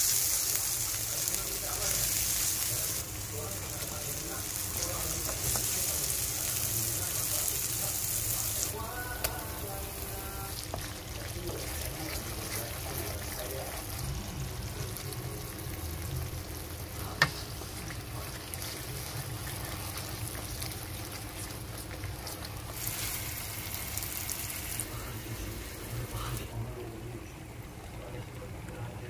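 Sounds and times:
sauce sizzling in frying pan: 0:00.0 - 0:26.5
wooden spoon stirring: 0:01.2 - 0:07.7, 0:08.5 - 0:15.2, 0:17.0 - 0:24.0.

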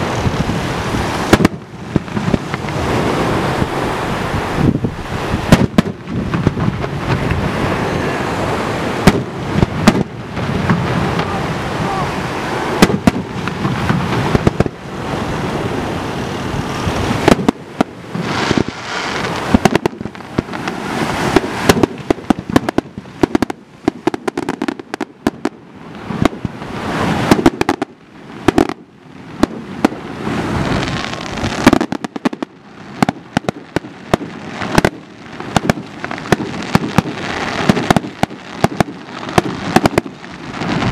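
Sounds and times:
fireworks bursting with sharp bangs: 0:00.0 - 0:40.9
noisy rumble: 0:00.0 - 0:40.9.

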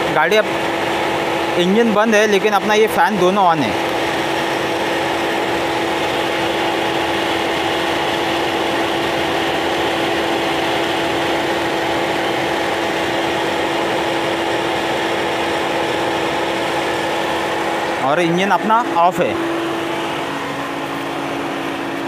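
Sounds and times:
electric cooling fans running: 0:00.0 - 0:22.0.

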